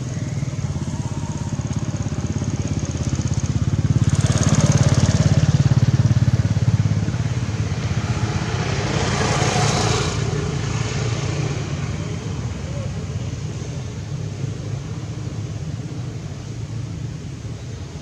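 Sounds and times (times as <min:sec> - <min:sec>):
small engine running: 0:00.2 - 0:07.0.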